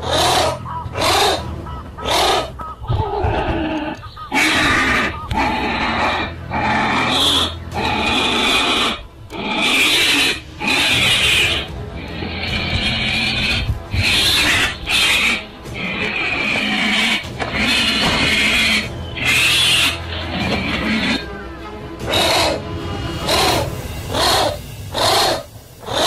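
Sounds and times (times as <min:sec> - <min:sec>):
mongoose growling: 0:00.0 - 0:21.4, 0:22.0 - 0:26.0
background music with low drone: 0:00.0 - 0:26.0
cobra hissing: 0:17.8 - 0:26.0.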